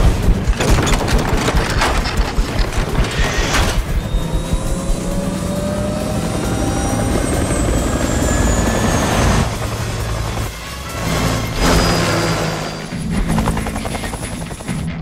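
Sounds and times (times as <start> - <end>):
helicopter rotor chopping: 0.0 - 15.0
turbine whine rising: 2.3 - 13.0.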